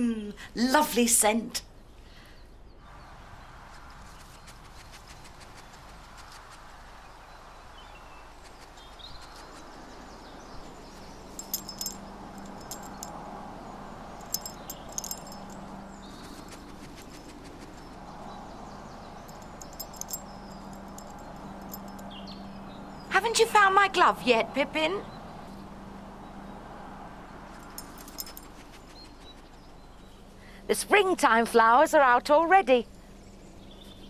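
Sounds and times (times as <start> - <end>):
light metallic jingling: 3.7 - 23.1, 27.4 - 30.2.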